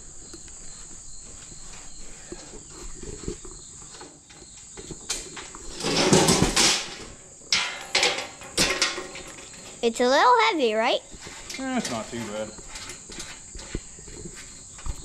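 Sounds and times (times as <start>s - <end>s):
crickets trilling: 0.0s - 15.0s
metal scraping and knocking: 2.6s - 9.8s, 11.1s - 15.0s.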